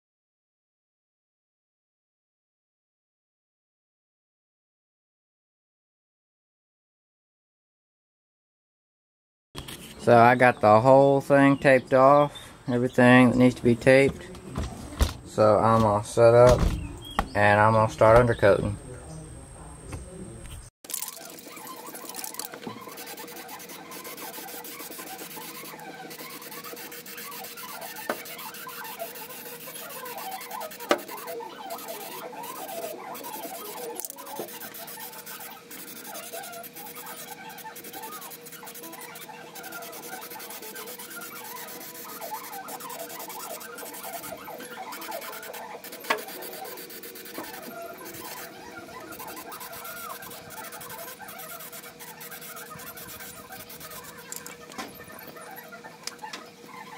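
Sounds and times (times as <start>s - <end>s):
aerosol can spraying: 21.9s - 44.3s, 44.9s - 54.3s.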